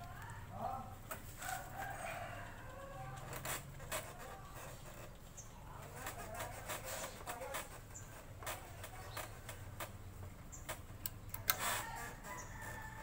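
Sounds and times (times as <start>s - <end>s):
rooster crowing: 1.4s - 3.3s, 11.7s - 13.0s.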